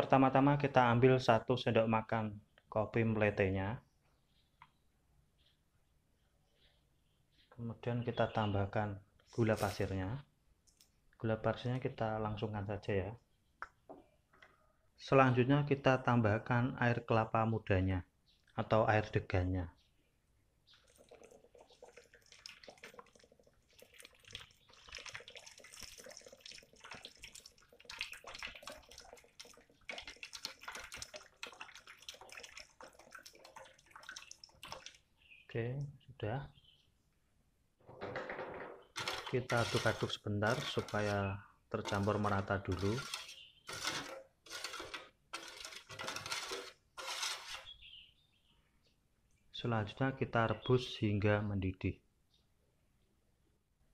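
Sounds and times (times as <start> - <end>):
water trickling into liquid: 20.6 - 35.3
metal spoon stirring in saucepan: 20.8 - 35.0, 39.0 - 47.8.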